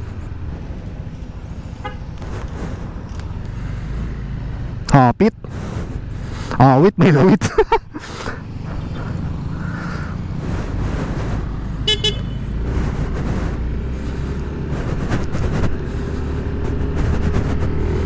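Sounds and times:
scooter wind and engine rumble: 0.0s - 18.0s
vehicle horn beep: 11.8s - 12.4s.

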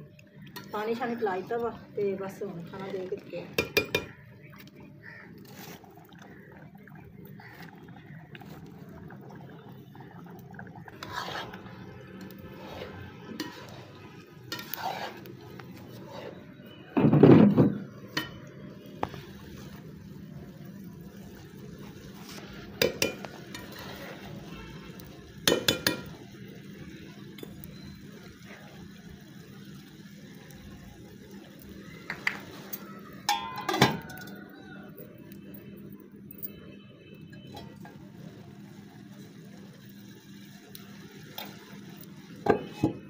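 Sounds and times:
metal spoon scraping a pot: 10.9s - 16.7s, 22.2s - 24.4s.

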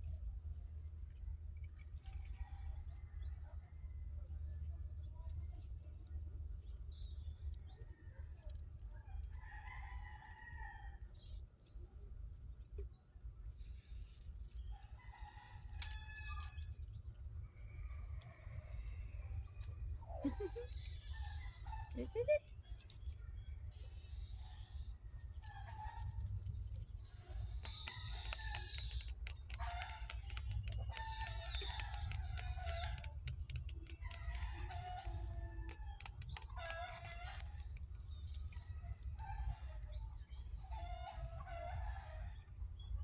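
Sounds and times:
birds chirping and calling: 17.6s - 42.9s.

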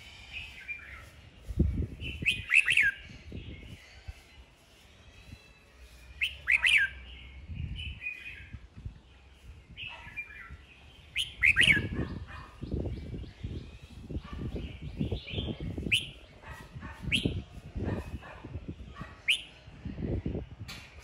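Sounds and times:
bird singing whistled notes: 0.0s - 3.8s, 4.8s - 8.7s, 9.4s - 17.5s, 19.2s - 19.6s.

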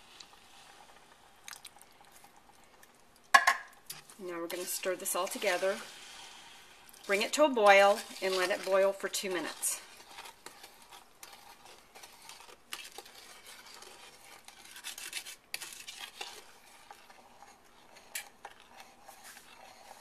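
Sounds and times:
spoon stirring in saucepan: 0.0s - 20.0s
spoon knocking against pan: 3.3s - 3.7s.

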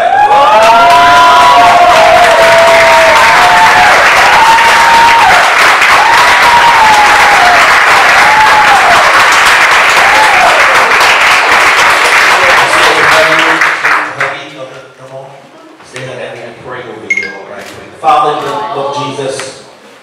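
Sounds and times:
crowd applauding and cheering: 0.0s - 14.4s.

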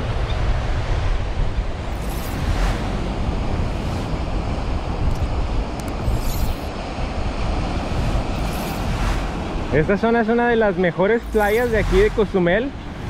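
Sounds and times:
surf breaking on shore: 0.0s - 5.7s
wind buffeting microphone: 0.0s - 10.2s.

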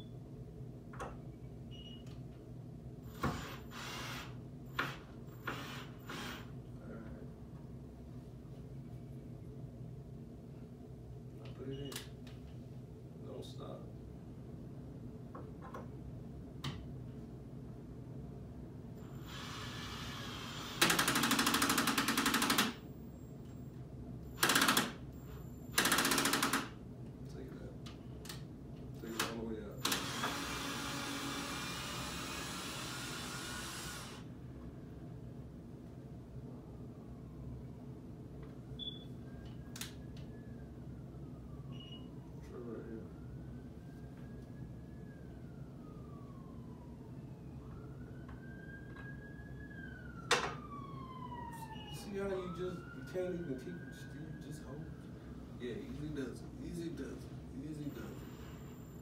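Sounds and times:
low steady hum: 0.0s - 20.7s, 22.8s - 24.4s, 26.8s - 59.0s
power drill driving screws: 3.1s - 6.5s, 19.0s - 22.7s, 29.1s - 34.2s.

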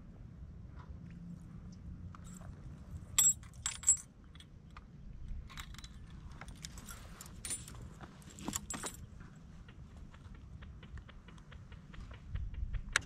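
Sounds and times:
fishing tackle clicking and jingling: 2.1s - 4.5s, 5.5s - 9.1s.

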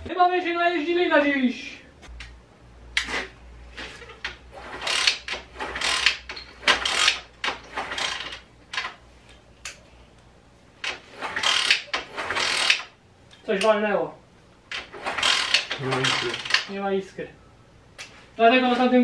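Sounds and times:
metal tools and parts rattling: 3.9s - 9.0s, 14.7s - 16.8s.

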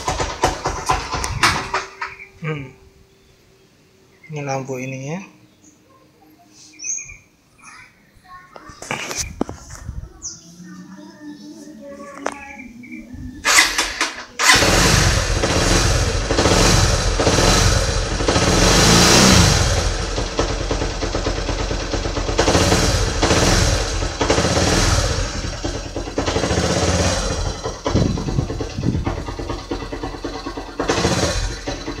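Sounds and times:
motorcycle engine starting and idling: 0.0s - 2.6s, 13.4s - 32.0s.

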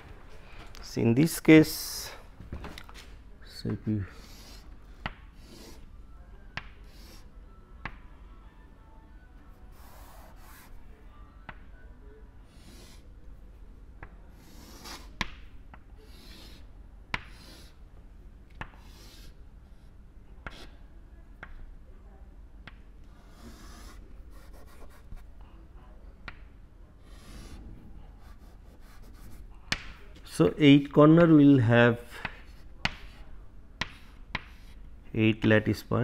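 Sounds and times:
chalk scraping on chalkboard: 14.4s - 15.2s, 16.1s - 17.8s, 23.2s - 25.2s
chalk tapping on board: 33.8s - 34.8s.

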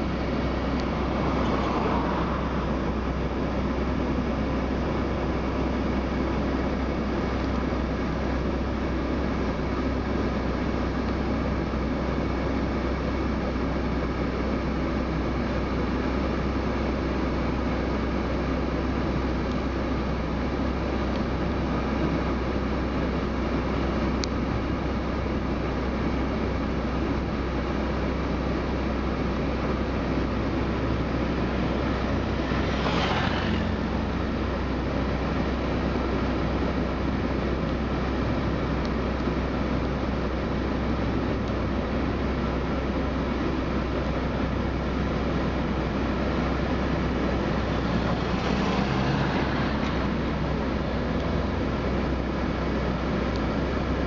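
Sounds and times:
passing vehicle hiss: 0.0s - 4.0s, 30.6s - 34.9s, 46.3s - 51.6s
street traffic rumble: 0.0s - 54.0s.

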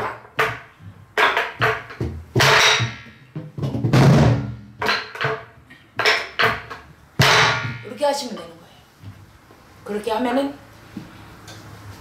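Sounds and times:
stick striking wooden drum shell: 0.0s - 7.9s.

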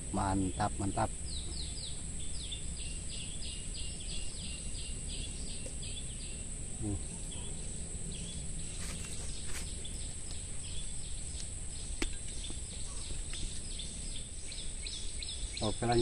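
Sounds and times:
bird chirps: 0.0s - 16.0s
high-pitched insect drone: 0.0s - 16.0s.

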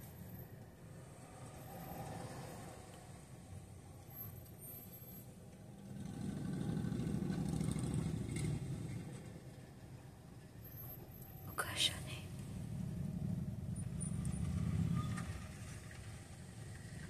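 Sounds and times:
vehicle rumble inside car: 0.0s - 17.0s.

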